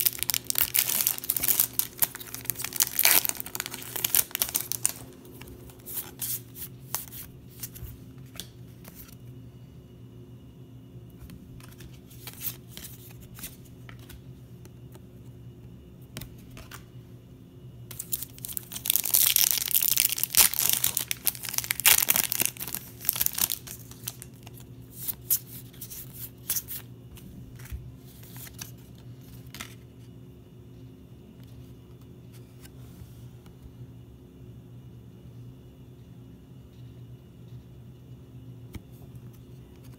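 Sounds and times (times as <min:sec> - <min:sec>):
foil wrapper tearing and crinkling: 0:00.0 - 0:07.2, 0:17.9 - 0:25.4
cards clicking and rustling: 0:00.0 - 0:09.2, 0:27.5 - 0:29.8.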